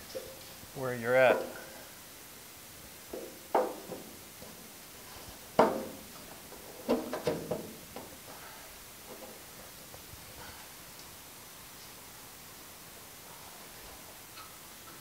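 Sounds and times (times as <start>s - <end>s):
wood knocking on metal panel: 3.1s - 4.1s, 5.6s - 6.0s, 6.8s - 8.1s.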